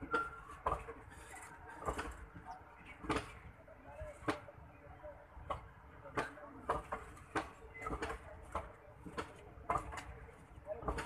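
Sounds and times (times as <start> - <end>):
train wheels clacking over rail joints: 5.5 - 11.0.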